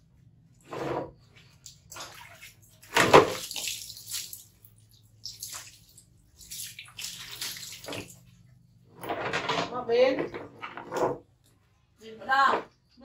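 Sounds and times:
water splashing on tiled floor: 0:01.4 - 0:08.5.

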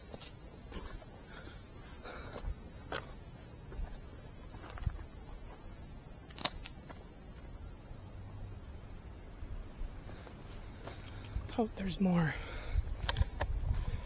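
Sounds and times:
footsteps on dirt and rock: 0:00.0 - 0:01.2, 0:01.8 - 0:07.1, 0:10.1 - 0:11.6
insect chorus: 0:00.0 - 0:14.0.

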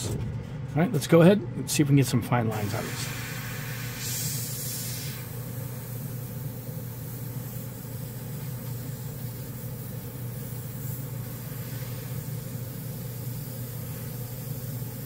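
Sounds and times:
airbrush hissing: 0:02.5 - 0:15.0.

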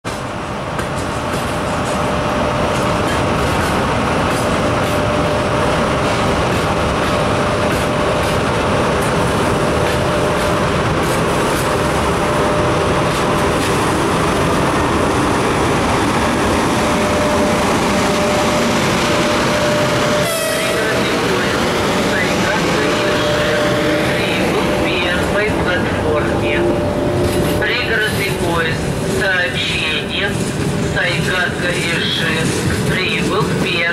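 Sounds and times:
electric locomotive droning: 0:00.0 - 0:33.9
train wheels on rails: 0:00.0 - 0:33.9.

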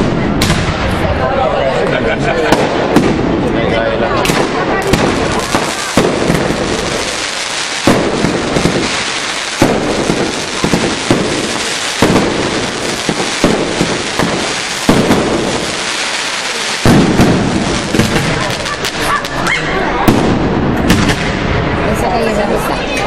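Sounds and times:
fireworks shells bursting: 0:04.8 - 0:19.1.

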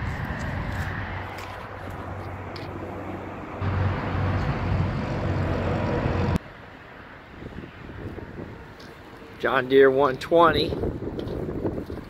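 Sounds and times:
diesel engine humming: 0:00.0 - 0:07.2.

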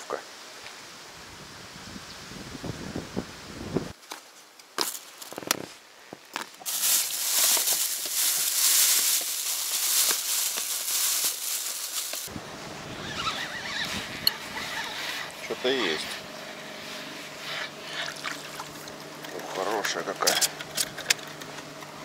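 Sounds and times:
plastic bag crinkling: 0:06.4 - 0:12.3.

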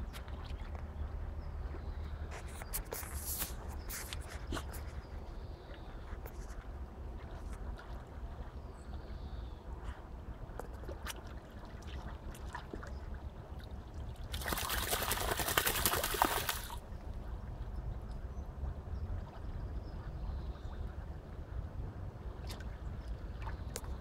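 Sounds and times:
dog paddling in water: 0:00.2 - 0:16.9
loud splashing: 0:14.3 - 0:16.8.

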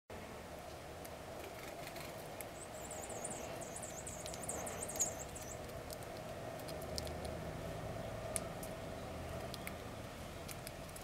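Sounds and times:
steady low hum: 0:00.1 - 0:11.0
songbird singing: 0:01.9 - 0:07.2, 0:07.9 - 0:11.0
light ticks: 0:04.2 - 0:07.4, 0:09.4 - 0:11.0.

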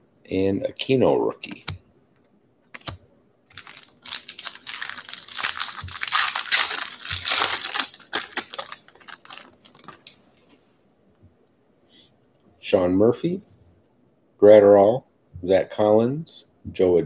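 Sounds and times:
foil pack tearing and crinkling: 0:03.5 - 0:10.2.

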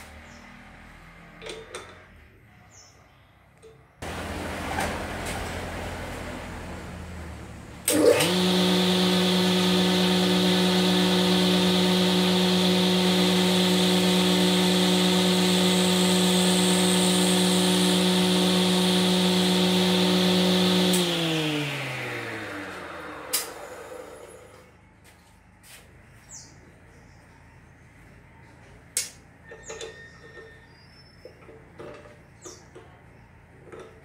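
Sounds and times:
electric motor humming: 0:04.0 - 0:24.6.

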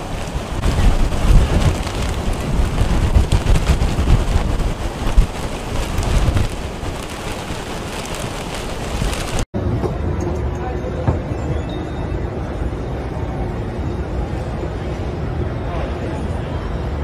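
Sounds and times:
heavy rain: 0:00.0 - 0:09.5
wind buffeting microphone: 0:00.0 - 0:10.1.

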